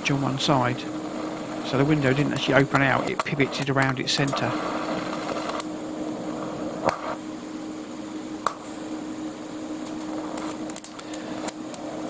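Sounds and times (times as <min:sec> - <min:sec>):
welding arc crackles: 0:00.0 - 0:12.0
welding set hum and hiss: 0:00.0 - 0:12.0.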